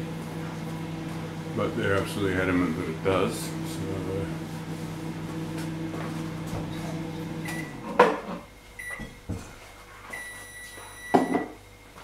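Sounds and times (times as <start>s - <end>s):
microwave running hum: 0.0s - 12.0s
microwave beeps: 6.6s - 7.9s, 8.5s - 9.3s, 10.1s - 12.0s.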